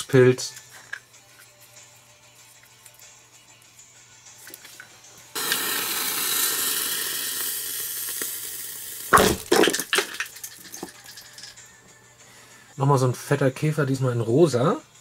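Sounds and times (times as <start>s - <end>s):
fuse hissing sparks: 5.4s - 9.4s
firework pop: 9.1s - 10.2s.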